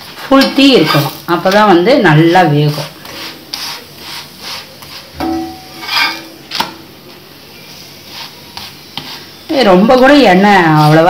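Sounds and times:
metal skimmer scraping a pan: 2.7 - 6.5.

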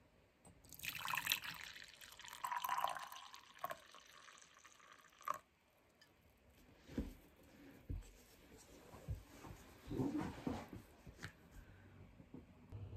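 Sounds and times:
coffee pouring into mug: 0.7 - 5.5.

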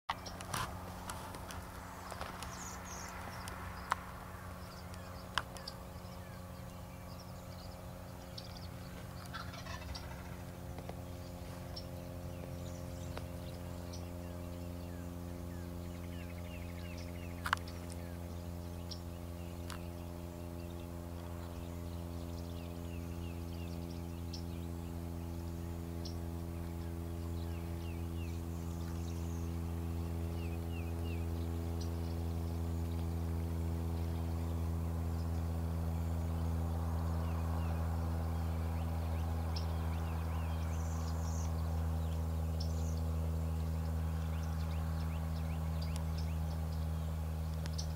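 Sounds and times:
small birds chirping: 0.1 - 47.9
steady low hum: 0.1 - 47.9
turkey gobbling: 9.3 - 10.4.

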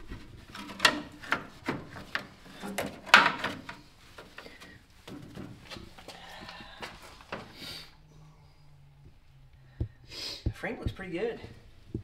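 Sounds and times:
sheet metal scraps knocking and scraping: 0.0 - 5.9.

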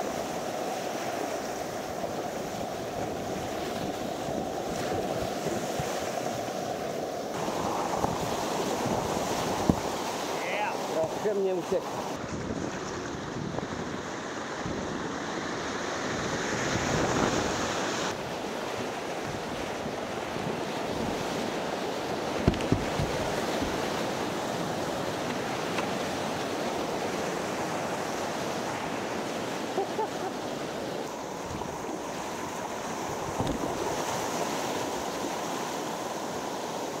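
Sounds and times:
whitewater rapids rushing: 0.0 - 12.2
sharp knocks on kayak: 22.4 - 23.2, 33.4 - 33.7.

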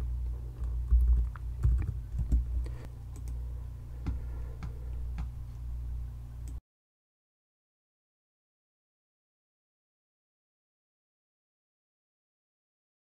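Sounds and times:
steady low hum: 0.0 - 6.6
keyboard typing clicks: 0.6 - 2.5.

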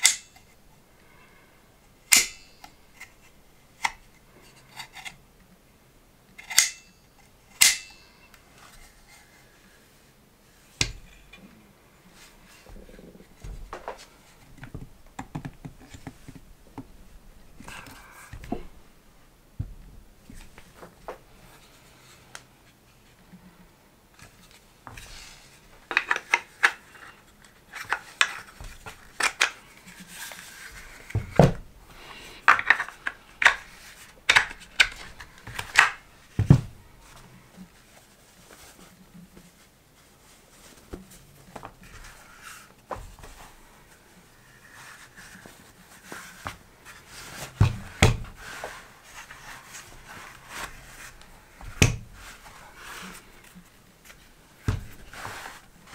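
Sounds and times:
plastic clicks and knocks: 14.6 - 16.9.

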